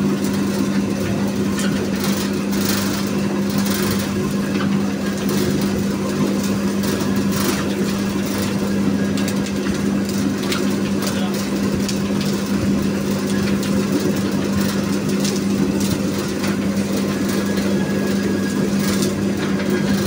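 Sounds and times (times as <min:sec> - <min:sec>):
juicer motor hum: 0:00.0 - 0:20.0.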